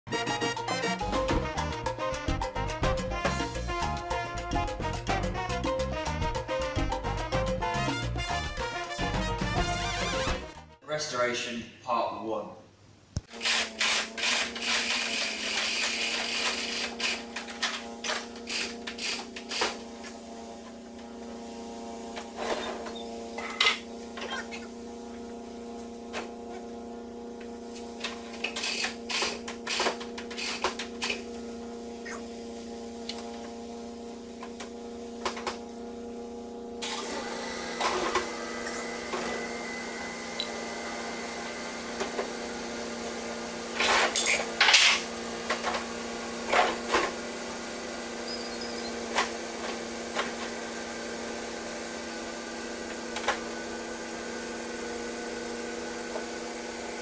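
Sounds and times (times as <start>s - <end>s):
low machine hum: 13.4s - 57.0s.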